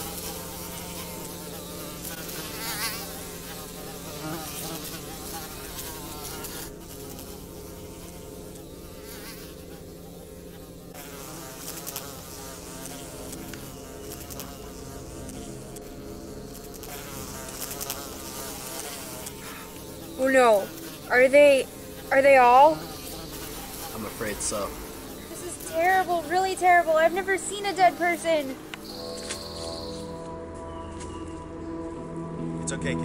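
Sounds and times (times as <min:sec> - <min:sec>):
flies buzzing: 0:00.0 - 0:32.3
steady drone: 0:18.3 - 0:33.0.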